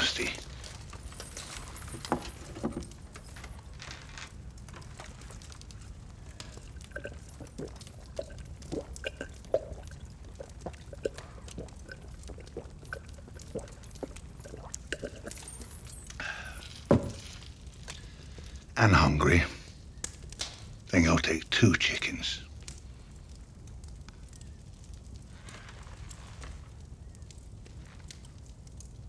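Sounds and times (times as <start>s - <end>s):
man swallowing a drink: 6.8s - 15.6s.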